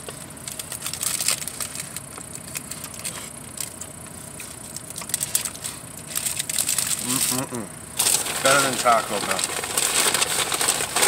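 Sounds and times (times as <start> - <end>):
paper wrapper crinkling: 0.4 - 11.0.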